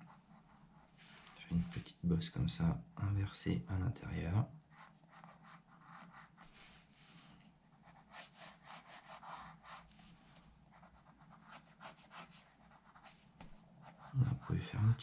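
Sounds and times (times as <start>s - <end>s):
pencil scratching on paper: 4.7s - 6.8s, 7.8s - 10.0s, 10.7s - 14.5s.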